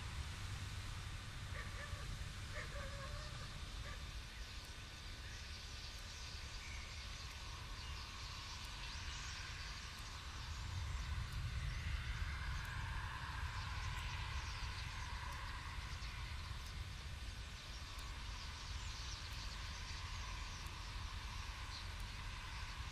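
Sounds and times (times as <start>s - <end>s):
wind rumble on microphone: 0.0s - 22.9s
short low bird calls: 1.5s - 4.1s.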